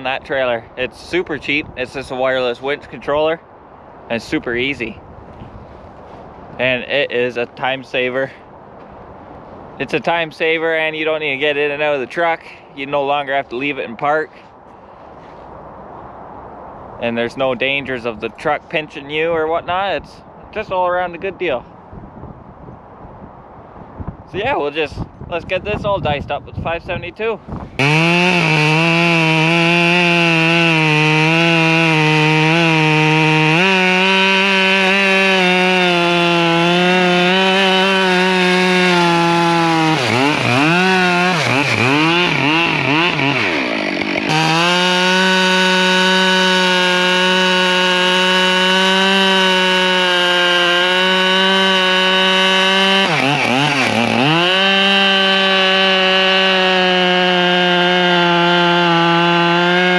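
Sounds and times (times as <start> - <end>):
chainsaw cutting a log: 27.8 - 59.9.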